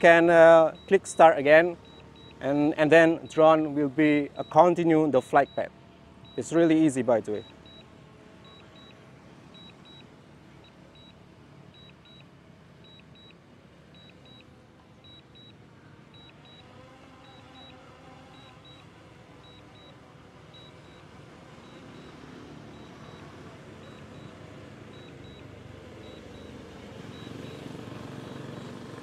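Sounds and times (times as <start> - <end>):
drone propellers humming: 0.0 - 29.0.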